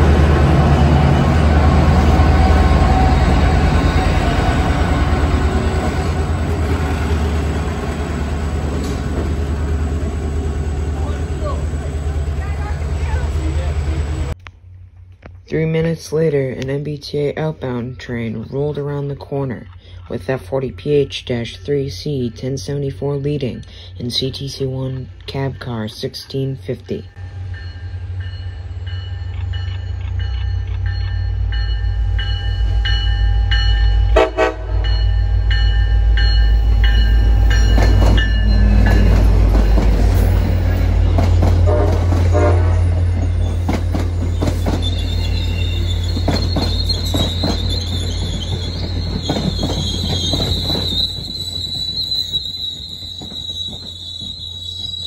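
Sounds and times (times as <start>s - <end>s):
train horn blowing: 0.0s - 6.5s, 34.1s - 34.9s, 41.5s - 43.1s
diesel locomotive rumble: 0.0s - 14.5s, 19.7s - 55.0s
train wheels squealing: 42.8s - 55.0s.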